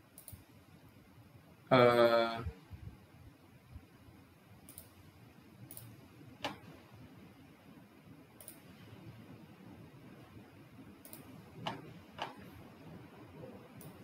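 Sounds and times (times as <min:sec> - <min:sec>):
computer mouse clicks: 0:00.1 - 0:00.5, 0:04.7 - 0:05.0, 0:05.7 - 0:06.7, 0:08.4 - 0:08.8, 0:11.0 - 0:12.5, 0:13.8 - 0:14.0.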